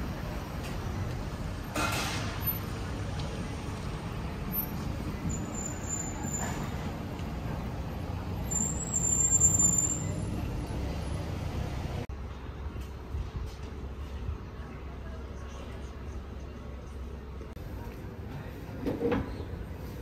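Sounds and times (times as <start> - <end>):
thin high squeal: 5.3 - 6.7, 8.5 - 10.3.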